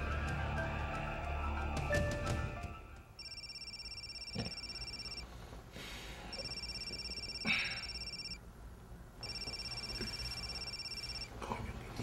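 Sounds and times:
telephone trilling ring: 3.2 - 5.3, 6.3 - 8.4, 9.2 - 11.3.

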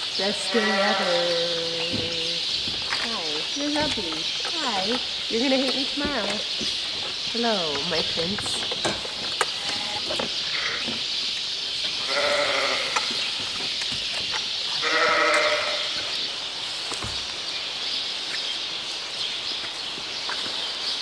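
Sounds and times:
lambs bleating: 0.2 - 1.9, 10.5 - 10.9, 12.0 - 13.1, 14.8 - 16.1.

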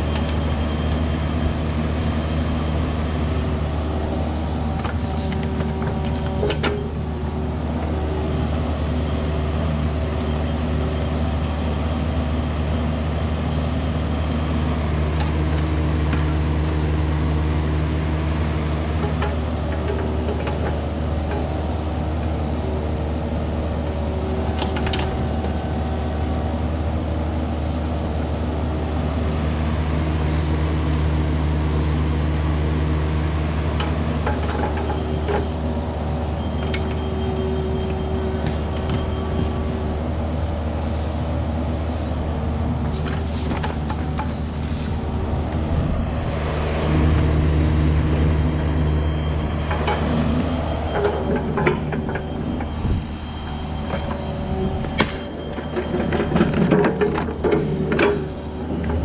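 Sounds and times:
excavator diesel engine running: 0.0 - 59.0.

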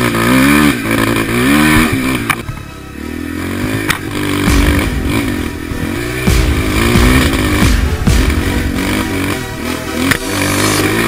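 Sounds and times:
quad engine revving: 0.0 - 11.0
wind rumble: 4.5 - 10.0.

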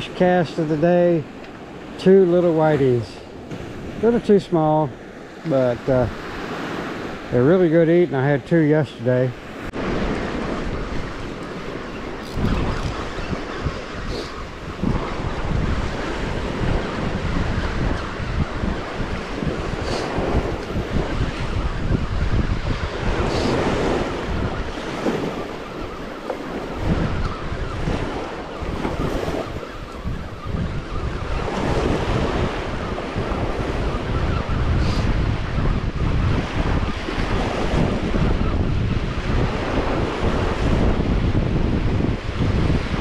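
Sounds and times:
waves breaking on beach: 0.0 - 43.0
wind buffeting microphone: 0.0 - 43.0.

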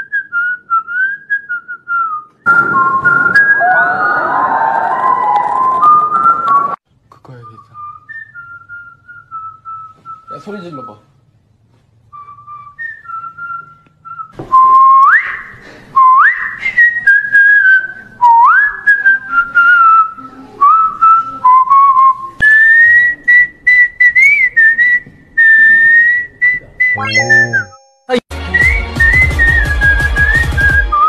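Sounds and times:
person whistling a melody: 0.0 - 3.8, 12.2 - 27.8, 28.4 - 31.0.

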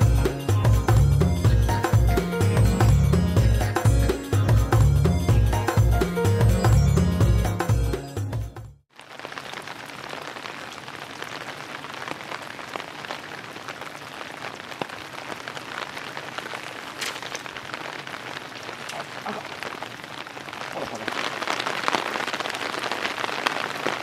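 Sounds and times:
background music: 0.0 - 8.8
water pattering: 9.3 - 24.0.

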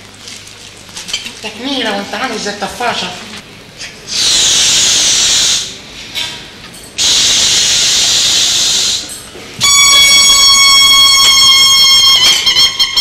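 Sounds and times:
air hissing from balloon: 4.1 - 6.1, 7.0 - 13.0
balloon neck squealing: 9.6 - 13.0.

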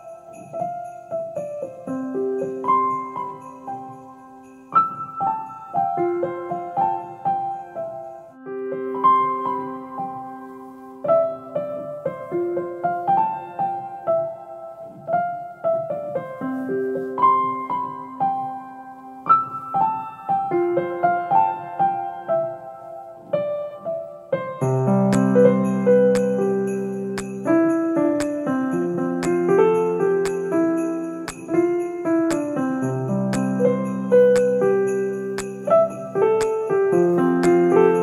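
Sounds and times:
gentle piano melody: 0.0 - 38.0.

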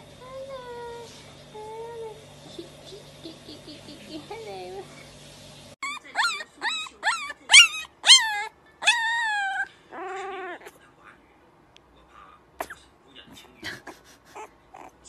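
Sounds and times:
puppy whimpering yelps: 5.8 - 10.7, 14.3 - 15.0.

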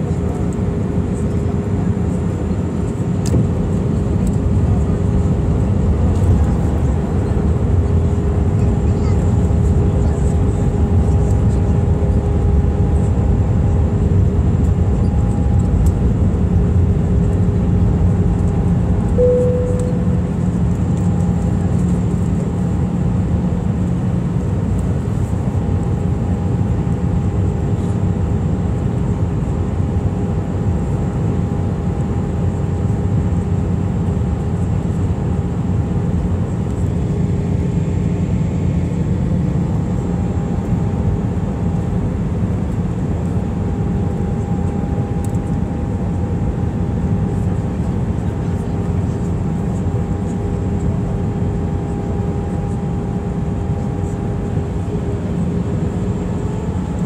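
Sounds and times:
aircraft engine and airflow drone: 0.0 - 57.0
faint steady whines: 0.0 - 57.0
short tone: 19.2 - 20.6.

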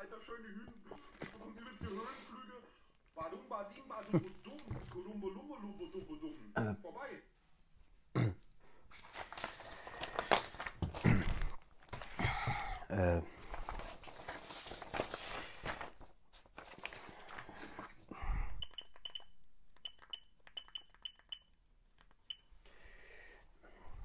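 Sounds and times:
paper rustling: 0.8 - 2.0, 8.9 - 12.2, 13.3 - 18.1
smartphone keypad beeps: 18.6 - 21.6, 22.3 - 22.5.

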